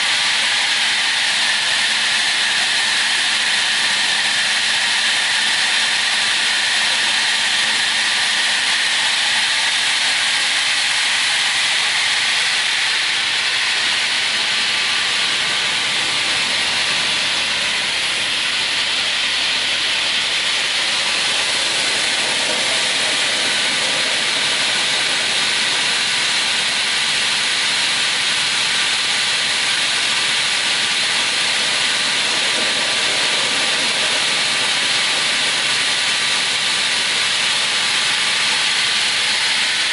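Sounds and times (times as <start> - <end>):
saw blade spinning: 0.0 - 39.9
crawler feed track moving: 31.1 - 36.6.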